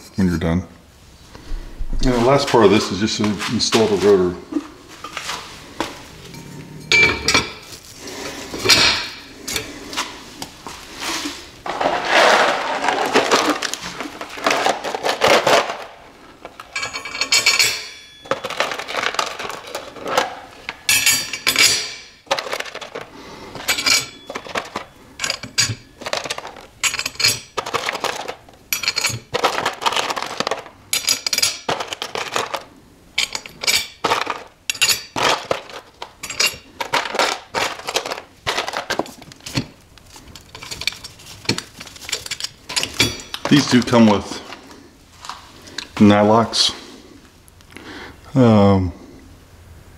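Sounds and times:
bolts and nuts clinking: 6.3s - 7.8s, 8.6s - 9.7s, 11.8s - 44.6s.

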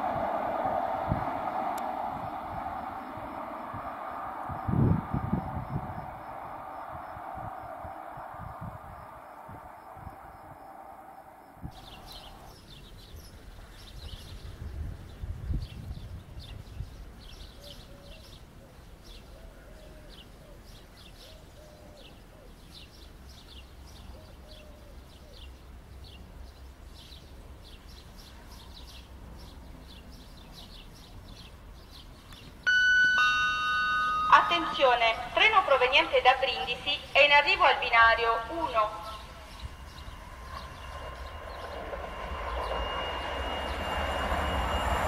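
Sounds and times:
birds chirping: 2.3s - 14.5s, 16.4s - 45.0s
two-tone public-address chime: 32.7s - 45.0s.

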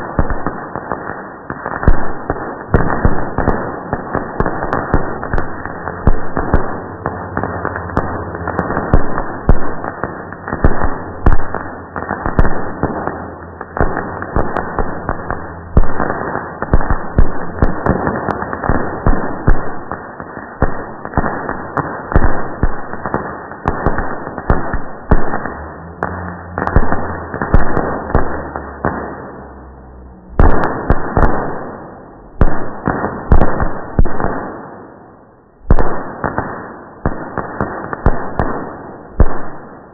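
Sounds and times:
slowed down fireworks bangs: 0.0s - 39.9s.

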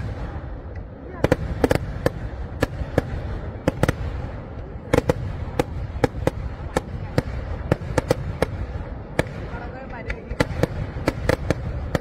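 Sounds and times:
fireworks bursting: 0.0s - 12.0s.

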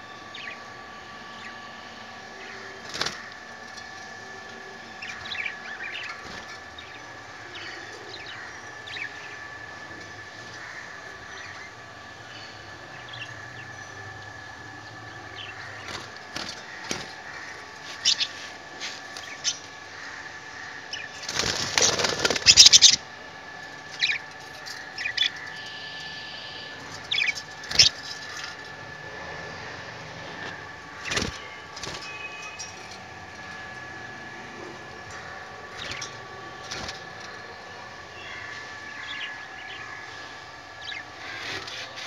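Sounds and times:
budgie flapping wings: 21.2s - 22.8s, 31.0s - 32.2s.

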